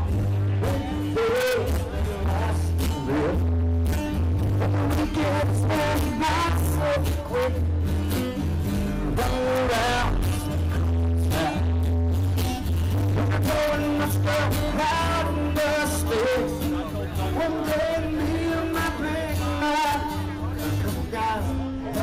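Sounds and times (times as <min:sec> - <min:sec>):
man singing: 0:00.0 - 0:03.6, 0:04.4 - 0:22.0
acoustic guitar: 0:00.0 - 0:22.0
live rock band playing: 0:00.0 - 0:22.0.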